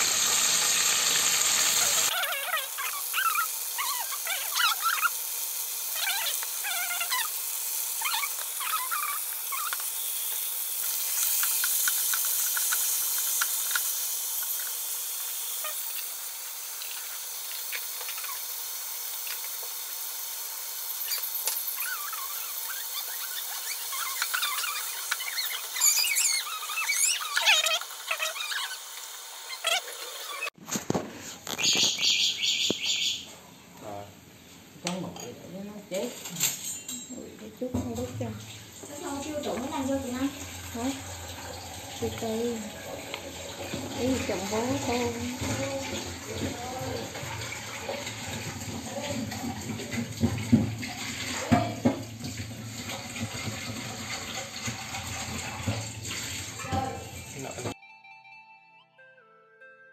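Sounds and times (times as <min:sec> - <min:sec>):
birds chirping: 0:31.6 - 0:33.3.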